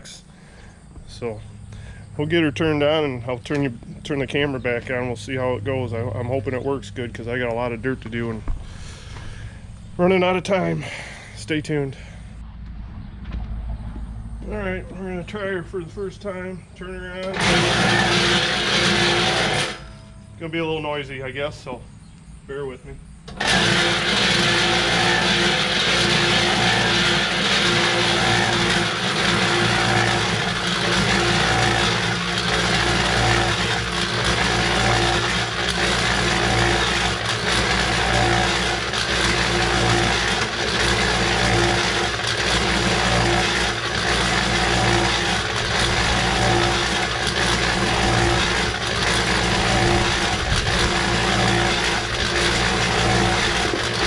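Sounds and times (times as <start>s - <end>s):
cement mixer motor humming: 14.4s - 21.5s, 23.3s - 54.0s.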